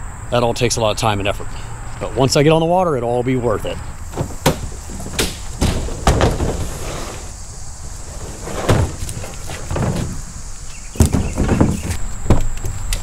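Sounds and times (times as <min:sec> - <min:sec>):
handling noise: 0:03.8 - 0:13.0
gear knocking and thumping: 0:04.1 - 0:06.7.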